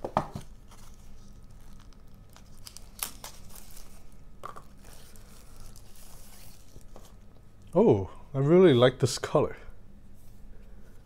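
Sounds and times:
plastic sleeve crinkling: 0.5 - 7.3.

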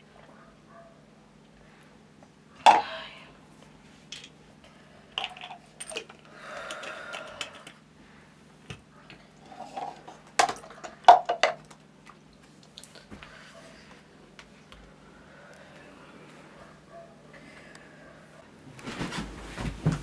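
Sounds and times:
faint low hum: 0.0 - 20.0
soft shuffling: 18.8 - 20.0.

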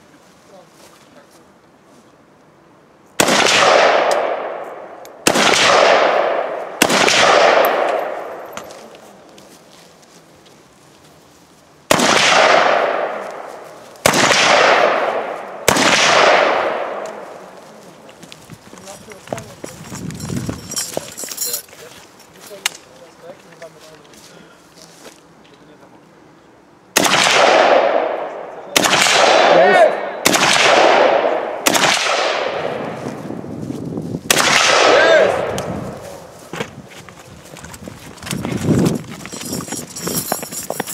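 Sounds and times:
gunshots echoing: 3.2 - 8.6, 11.9 - 17.6, 27.0 - 33.1, 34.3 - 36.3.

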